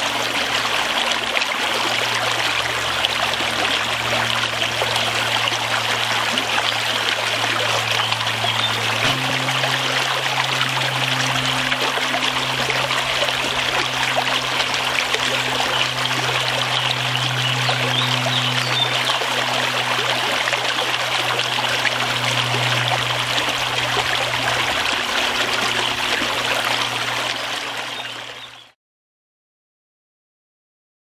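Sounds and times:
low steady hum: 0.0 - 28.7
running water rushing: 0.0 - 28.7.

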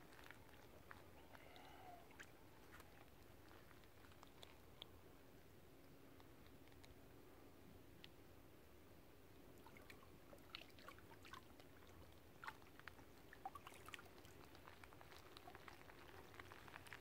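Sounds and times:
small water splashes and drips: 0.0 - 5.0, 9.5 - 17.0
low steady hiss: 0.0 - 17.0.

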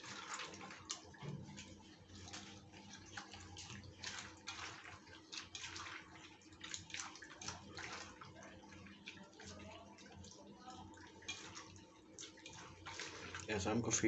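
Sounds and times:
food squelching mashed by hand: 0.0 - 10.4.

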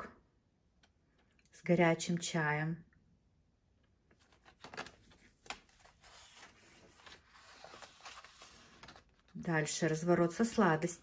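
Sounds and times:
paper rustling: 4.1 - 9.4.

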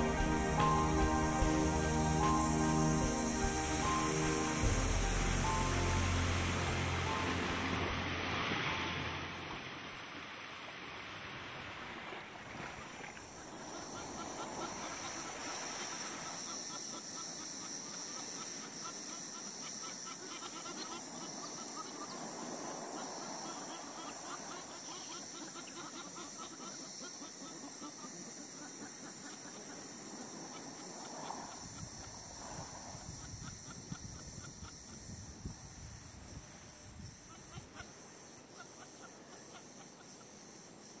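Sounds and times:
high-pitched drone: 0.0 - 9.9
surf washing: 0.0 - 17.1, 21.0 - 25.2
wind: 0.0 - 41.0.

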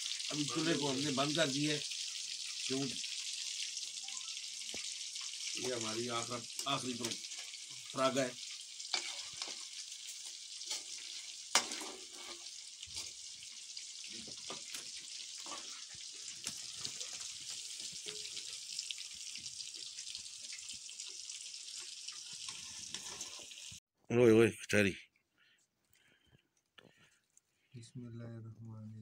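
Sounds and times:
fish deep-frying in oil: 0.0 - 23.8
steel ladle clinking and scraping: 8.9 - 9.7, 10.6 - 13.2, 18.0 - 18.6, 22.5 - 23.6.

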